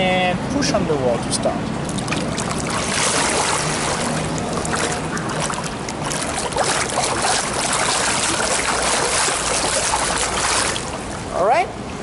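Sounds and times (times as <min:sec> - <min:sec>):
swimmer kicking splashing water: 0:01.8 - 0:11.2.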